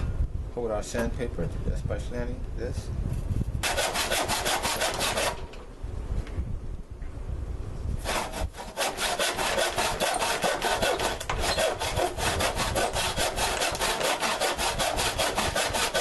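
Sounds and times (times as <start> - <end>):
handsaw cutting wood: 3.6 - 5.5, 8.0 - 16.0.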